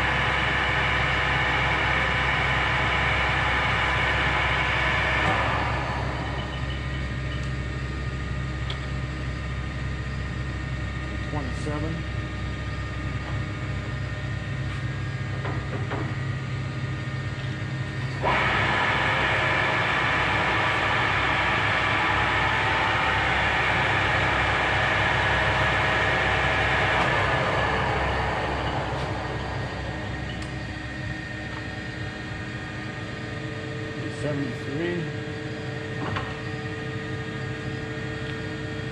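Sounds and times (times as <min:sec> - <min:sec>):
lathe spindle running with whine: 0:00.0 - 0:38.9
motor hum: 0:00.0 - 0:38.9.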